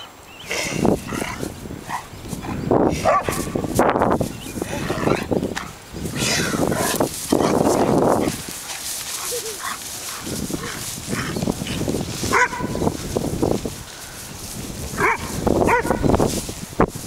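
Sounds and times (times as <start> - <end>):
running feet in grass: 0.0 - 17.0
dog barking: 3.0 - 3.6, 12.3 - 12.8, 15.0 - 16.1.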